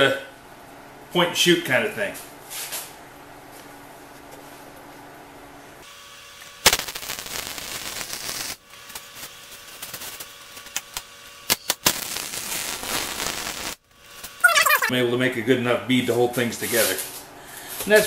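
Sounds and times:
welder hum: 5.8 - 14.9
welding arc crackling and popping: 6.1 - 14.8.

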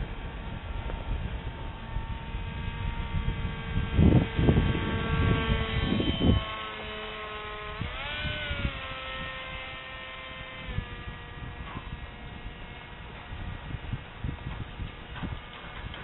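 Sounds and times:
electric model plane whining: 0.0 - 16.0
wind buffeting microphone: 0.0 - 16.0.

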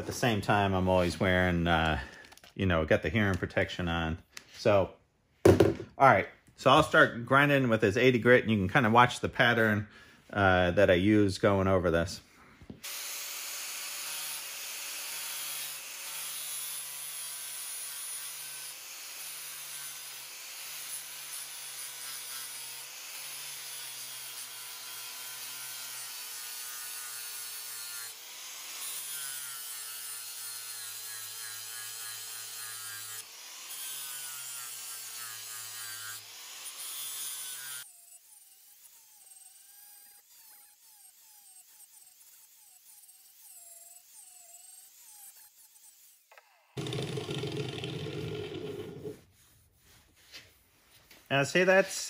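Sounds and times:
angle grinder grinding steel: 12.9 - 50.6.

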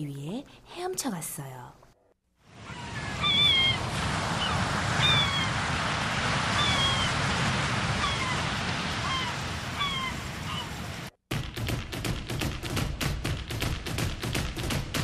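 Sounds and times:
ocean waves: 2.4 - 11.2
seagulls crying: 2.5 - 5.7, 6.4 - 7.3, 7.9 - 11.0.

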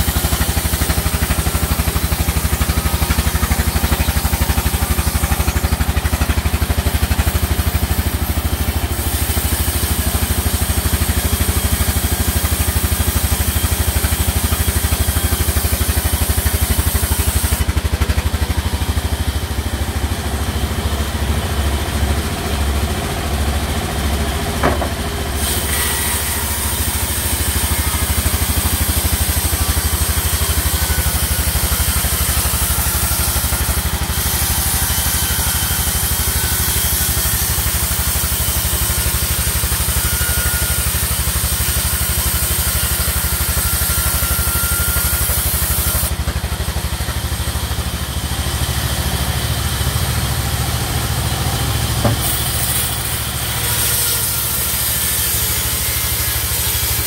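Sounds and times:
band saw running: 0.0 - 57.0
brief high squeak: 43.7 - 45.4.

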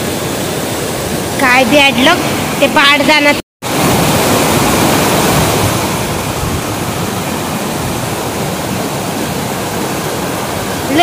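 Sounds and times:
water rushing down stone weir: 0.0 - 11.0.

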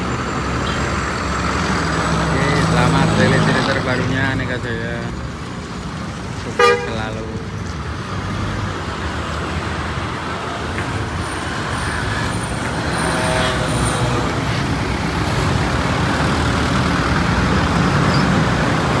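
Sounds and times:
diesel bus engine pulling away: 0.0 - 6.0, 7.4 - 19.0
passing road traffic: 0.0 - 19.0.

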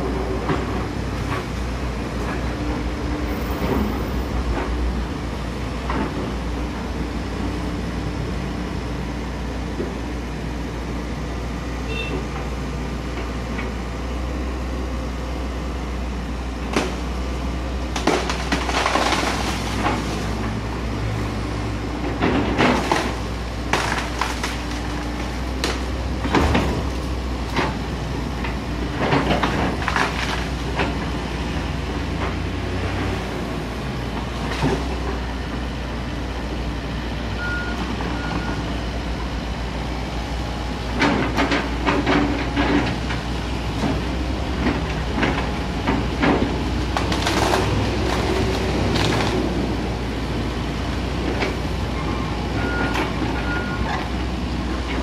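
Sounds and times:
excavator diesel engine running: 0.0 - 55.0
branches cracking and snapping: 17.9 - 20.6, 22.6 - 27.8, 29.4 - 31.0, 46.6 - 49.8.

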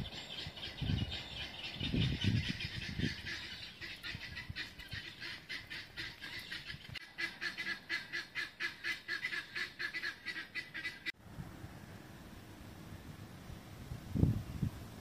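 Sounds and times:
wind noise on microphone: 0.0 - 5.3, 12.8 - 15.0
bird honking: 2.4 - 11.1.

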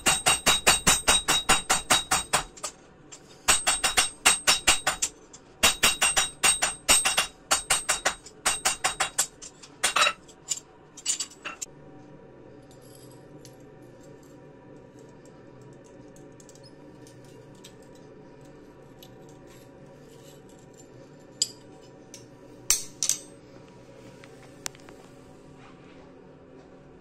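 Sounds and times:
hammer striking steel: 0.0 - 2.7, 3.5 - 10.2
faint steady hum: 0.0 - 27.0.

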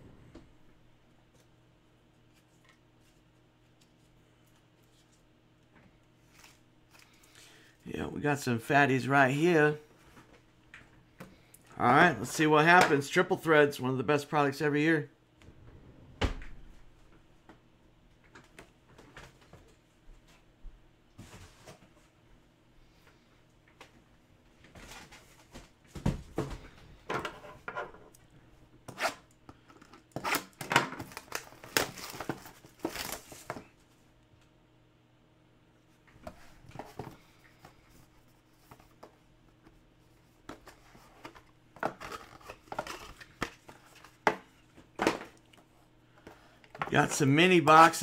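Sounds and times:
shrink-wrap and cardboard ripping: 30.2 - 33.6.

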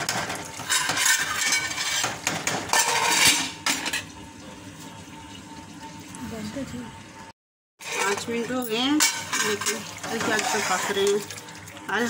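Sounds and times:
metal spatula scraping pot: 0.0 - 4.1, 7.8 - 11.3.

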